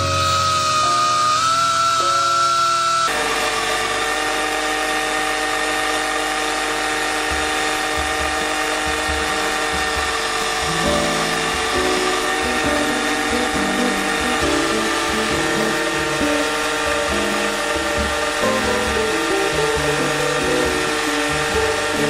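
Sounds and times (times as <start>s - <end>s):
buffing machine motor whine: 0.0s - 22.0s
background music with a beat: 8.2s - 22.0s.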